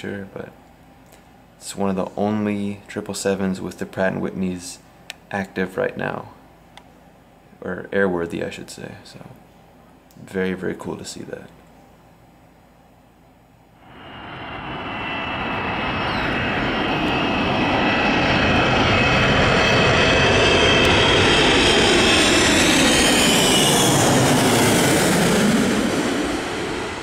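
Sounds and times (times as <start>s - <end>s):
high engine whine: 13.6s - 27.0s
jet plane flying overhead: 13.8s - 27.0s.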